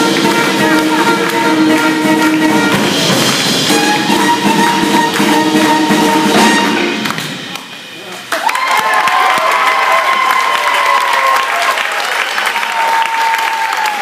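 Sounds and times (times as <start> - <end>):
swing band playing: 0.0 - 8.2.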